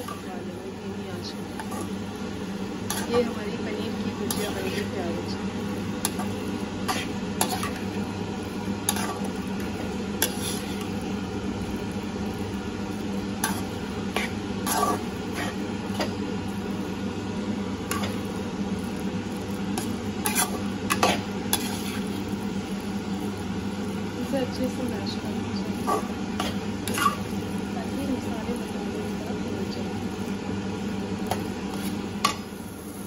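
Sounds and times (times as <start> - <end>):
low sizzle and hum: 0.0 - 33.0
metal spatula scraping pan: 2.9 - 5.0, 6.0 - 7.9, 8.9 - 9.3, 10.2 - 10.9, 13.4 - 16.1, 19.8 - 22.2, 25.8 - 27.3.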